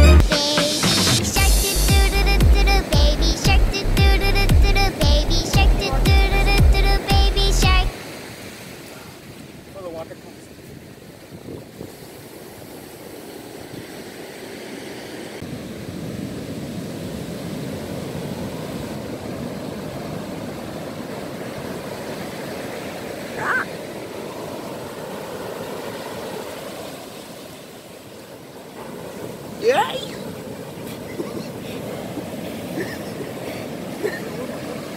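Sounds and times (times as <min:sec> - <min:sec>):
ocean surf breaking: 0:00.3 - 0:34.9
wind on microphone: 0:10.6 - 0:13.0.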